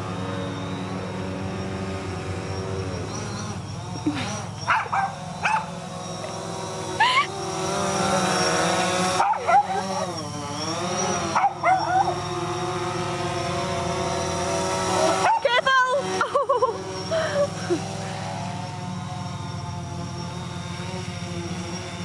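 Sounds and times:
drone rotors whining: 0:00.0 - 0:22.0
small dog yipping and barking: 0:04.6 - 0:05.7, 0:09.2 - 0:10.2, 0:11.2 - 0:12.3, 0:15.2 - 0:15.6.

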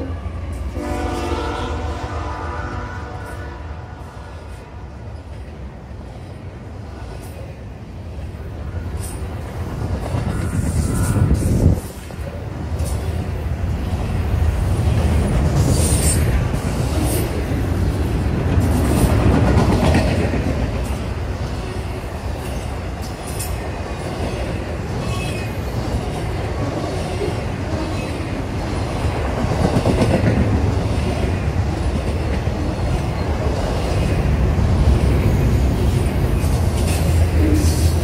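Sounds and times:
steel wheels rumbling on rail: 0:00.0 - 0:38.0.

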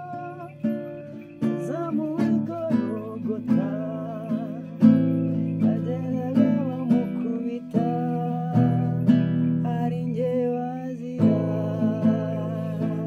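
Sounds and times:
acoustic guitar strumming: 0:00.0 - 0:13.0
man singing: 0:00.0 - 0:13.0.

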